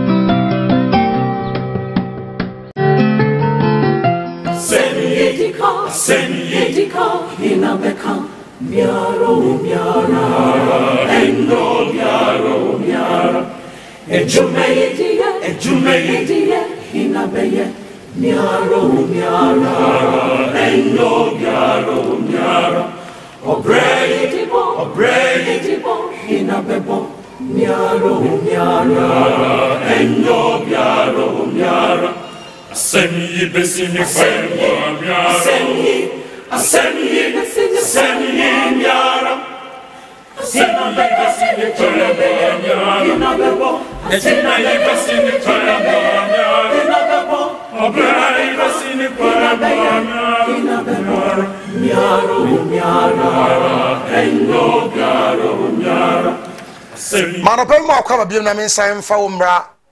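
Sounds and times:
choir singing in harmony: 4.5s - 57.8s
singers breathing: 13.5s - 14.1s, 22.9s - 23.4s, 36.2s - 36.5s, 39.8s - 40.4s, 51.4s - 51.8s.

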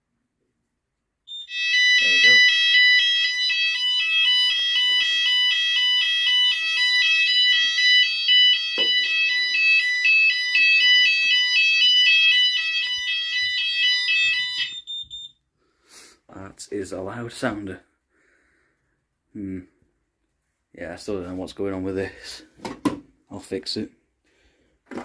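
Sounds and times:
two-tone fire alarm: 1.3s - 15.4s.

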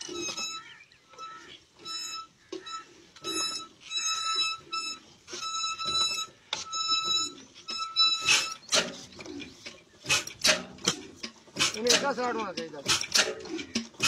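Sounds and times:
high-pitched alarm beeping: 0.0s - 8.7s.

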